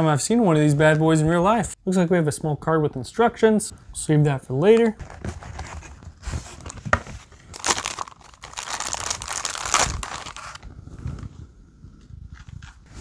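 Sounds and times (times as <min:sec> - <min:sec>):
plastic bag crinkling: 0:07.5 - 0:10.6.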